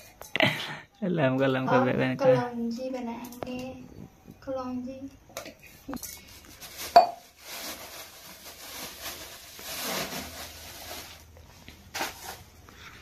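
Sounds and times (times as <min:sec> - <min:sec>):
plastic bag crinkling: 0:06.2 - 0:12.7.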